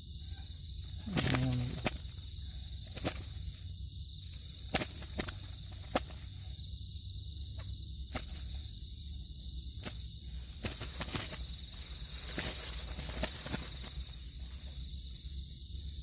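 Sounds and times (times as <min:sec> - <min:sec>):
net rustling in dry grass: 0:09.8 - 0:14.9.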